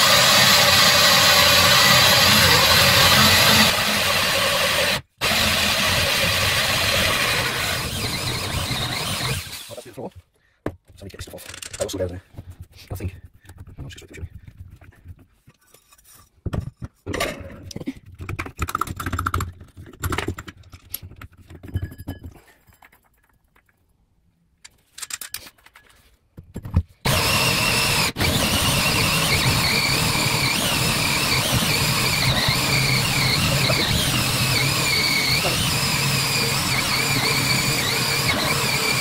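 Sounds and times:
cordless drill humming: 0.0s - 9.8s, 27.0s - 39.0s
hole saw whining through flooring: 0.0s - 10.0s, 27.0s - 39.0s
handling knocks and rustles: 10.2s - 18.7s.

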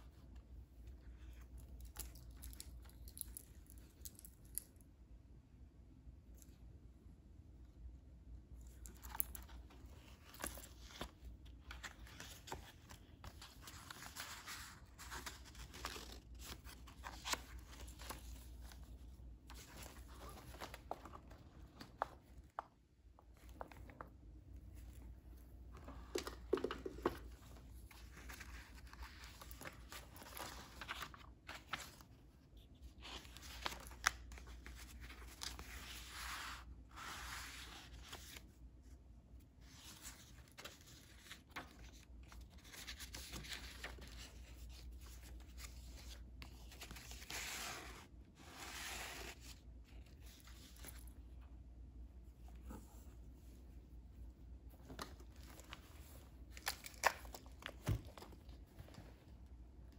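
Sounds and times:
paper pages rustling: 8.8s - 38.5s, 39.6s - 51.2s, 54.7s - 59.4s.

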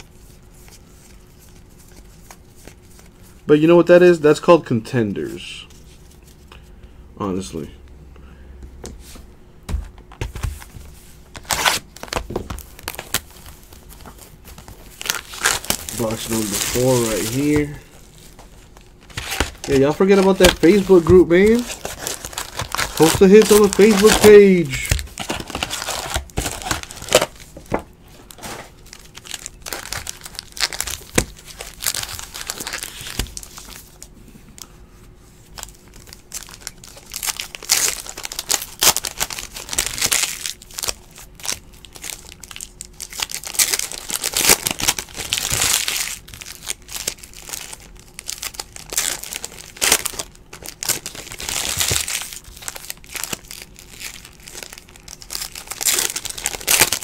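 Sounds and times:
foil wrappers crinkling and tearing: 11.3s - 34.1s, 35.5s - 57.0s.

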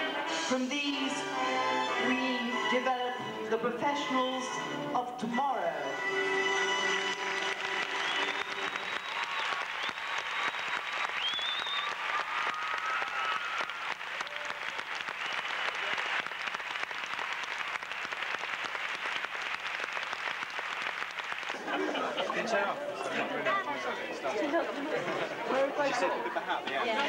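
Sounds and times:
audience applauding: 6.6s - 24.0s
high whistles: 7.9s - 13.8s.

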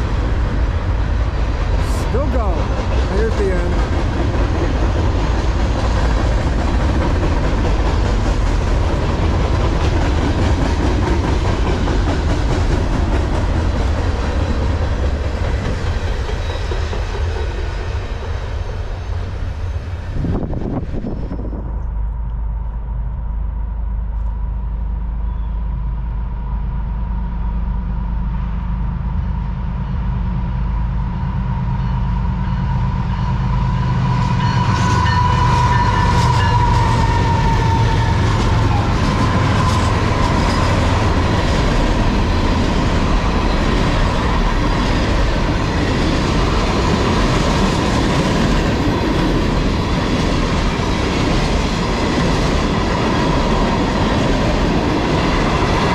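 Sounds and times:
train wheels clacking on rails: 0.0s - 19.4s, 32.6s - 55.9s
diesel locomotive engines rumbling: 0.0s - 55.9s.

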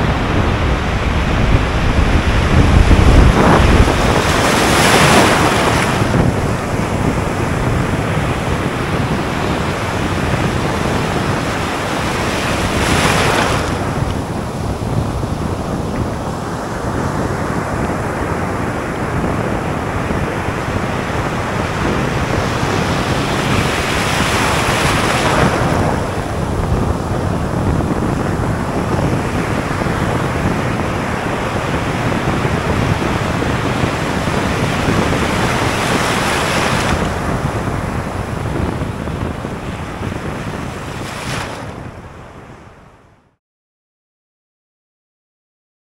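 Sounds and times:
surf washing over beach: 0.0s - 43.1s.

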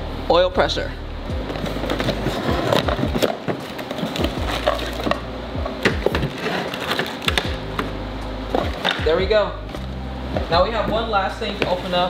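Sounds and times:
music with deep bass beat: 0.0s - 3.4s, 4.2s - 6.5s, 7.2s - 12.0s
cardboard box handling: 1.5s - 5.2s.

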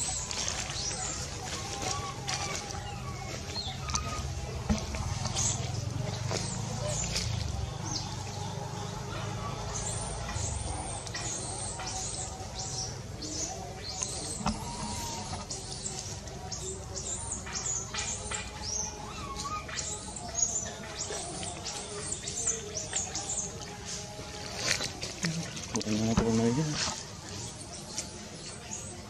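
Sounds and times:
baby monkey squealing: 14.4s - 15.6s, 19.0s - 20.1s.

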